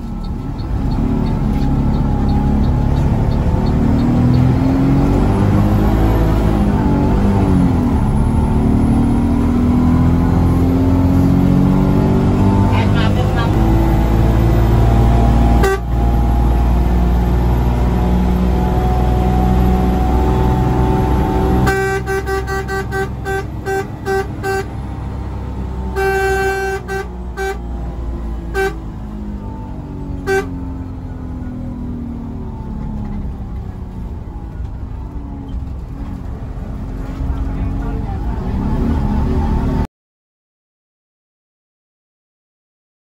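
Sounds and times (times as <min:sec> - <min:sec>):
bus engine pulling hard: 0:00.0 - 0:39.9
horn toots and blast: 0:14.8 - 0:16.6, 0:20.6 - 0:25.0, 0:25.9 - 0:27.8, 0:28.5 - 0:28.9, 0:30.2 - 0:30.8.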